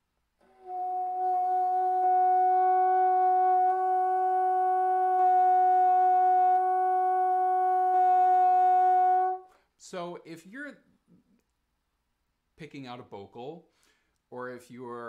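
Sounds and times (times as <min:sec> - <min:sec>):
bassoon long held note: 0:00.4 - 0:09.5.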